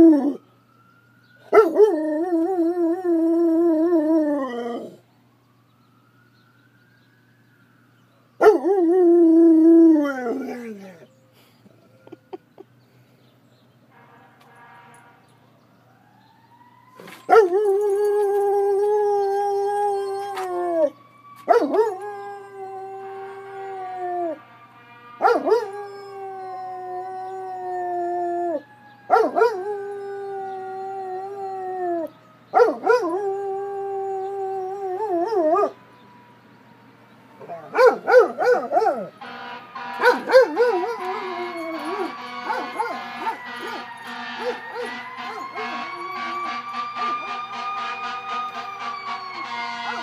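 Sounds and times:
distant siren wailing: 0:00.0 - 0:12.8, 0:13.9 - 0:50.0
dog howling: 0:25.2 - 0:35.8, 0:40.0 - 0:47.4.

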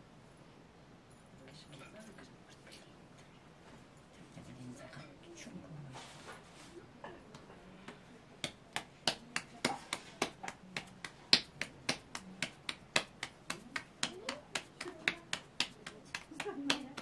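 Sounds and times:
hands slapping dough: 0:08.4 - 0:17.0.

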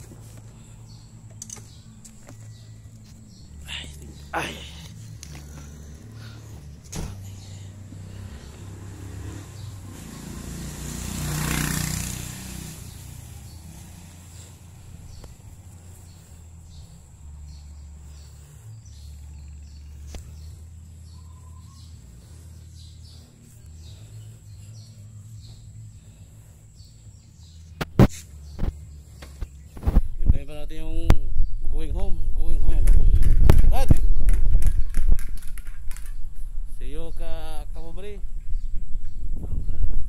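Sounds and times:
vehicle passing: 0:00.0 - 0:29.6
steady low street hum: 0:00.0 - 0:40.0
faint bird chirps: 0:14.4 - 0:29.8.

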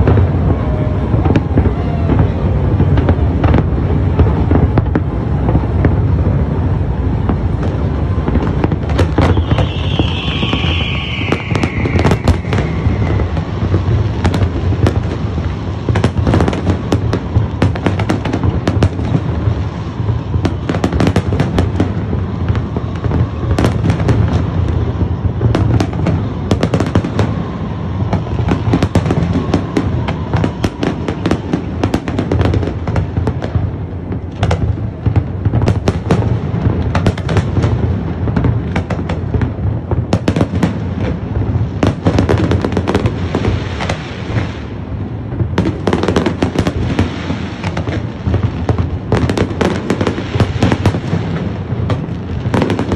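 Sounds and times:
steady low rumble: 0:00.0 - 0:15.9
fireworks bangs and crackles: 0:00.0 - 0:52.9.

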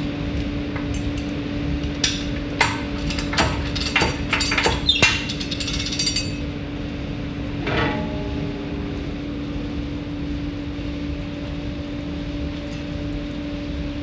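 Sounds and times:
steady hum: 0:00.0 - 0:14.0
metal clanking and ringing knocks: 0:02.6 - 0:06.5, 0:07.6 - 0:09.4.

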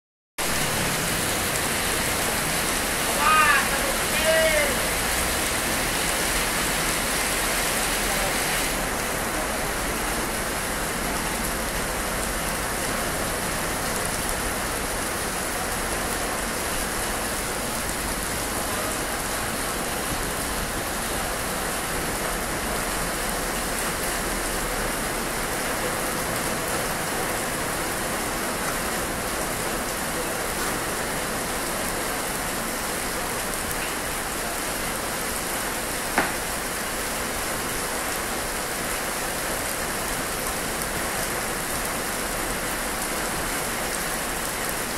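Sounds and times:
steady rain falling: 0:00.4 - 0:44.9.

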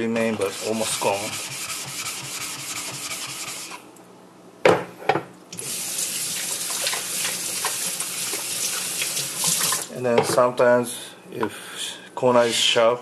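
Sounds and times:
rubbing on a wet whetstone: 0:00.0 - 0:03.8.

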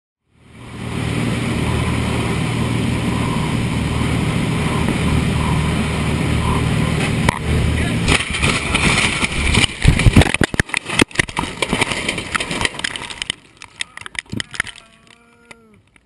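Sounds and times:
aircraft engine and rushing air: 0:00.2 - 0:10.3
loud bangs and crunches: 0:07.0 - 0:15.2
debris rattling and clattering: 0:08.0 - 0:15.2.

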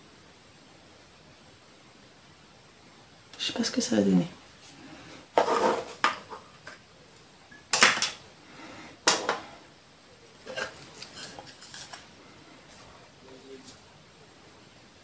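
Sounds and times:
objects clattering on a counter: 0:05.4 - 0:06.8, 0:07.5 - 0:08.2, 0:09.0 - 0:09.6.

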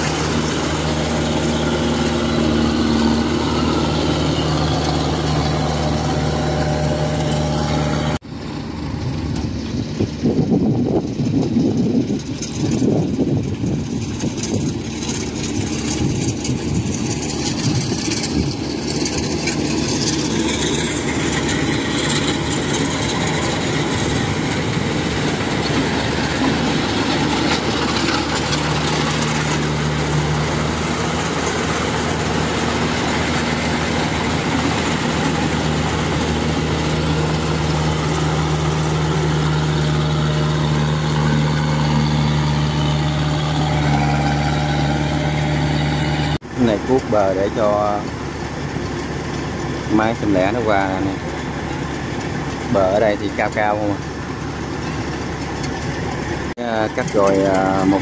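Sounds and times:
combine harvester diesel engine: 0:00.0 - 0:58.0
threshing noise: 0:09.0 - 0:46.4.

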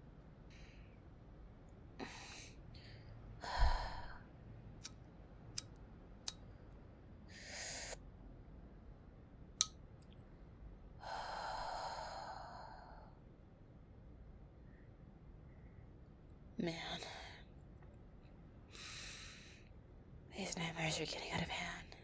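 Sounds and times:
woman breathing: 0:00.5 - 0:01.0, 0:02.0 - 0:04.3, 0:07.3 - 0:08.0, 0:11.0 - 0:13.2, 0:18.7 - 0:19.7.

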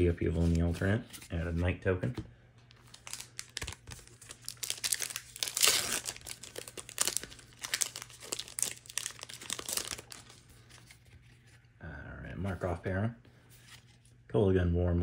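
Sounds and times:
foil wrapper crinkling and tearing: 0:02.8 - 0:11.0.

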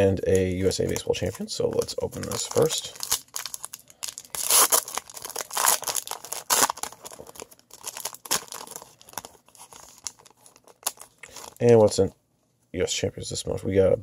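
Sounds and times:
foil crinkling: 0:00.6 - 0:12.0
foil wrapper ripping: 0:02.2 - 0:11.8.

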